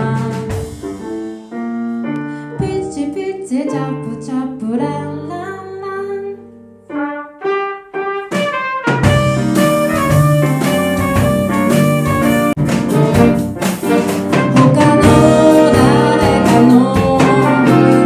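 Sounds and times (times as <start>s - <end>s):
live band playing rock ballad: 0.0s - 1.6s, 8.9s - 18.0s
drums: 0.0s - 3.3s, 8.2s - 18.0s
horn section: 6.9s - 18.0s.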